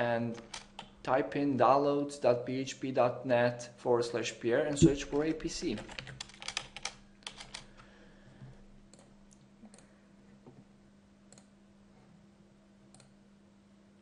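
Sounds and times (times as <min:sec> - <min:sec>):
faint electrical hum: 0:00.0 - 0:14.0
computer mouse clicking: 0:04.8 - 0:07.8, 0:12.9 - 0:13.2.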